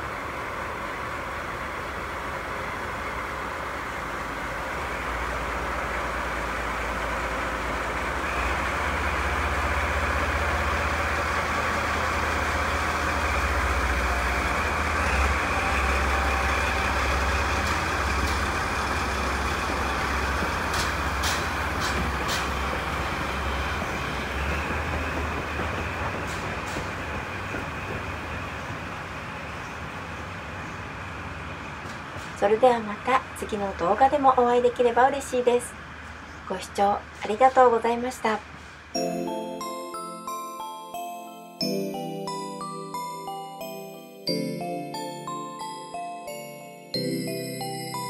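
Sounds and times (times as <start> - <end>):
diesel locomotive rumbling: 0.0 - 41.2
sharp clacks: 20.4 - 22.7.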